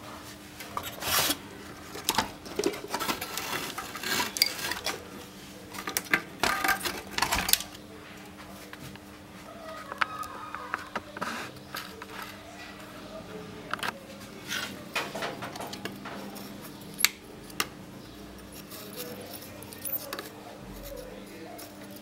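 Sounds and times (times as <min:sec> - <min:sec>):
circuit board clattering and rustling: 0:01.9 - 0:05.1, 0:05.7 - 0:07.8, 0:13.7 - 0:17.7.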